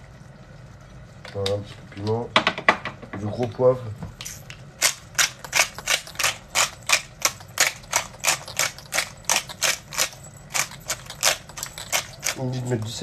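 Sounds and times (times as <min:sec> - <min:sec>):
pepper mill grinding: 0:04.2 - 0:13.0.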